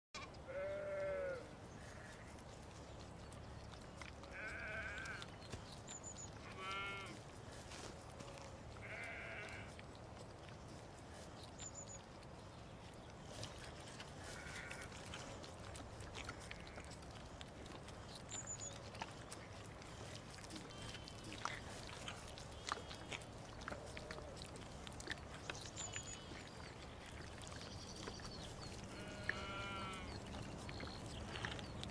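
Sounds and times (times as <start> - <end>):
lamb bleating: 0.2 - 2.2, 4.3 - 5.3, 6.4 - 7.2, 8.2 - 9.7, 14.2 - 15.3, 28.9 - 30.2.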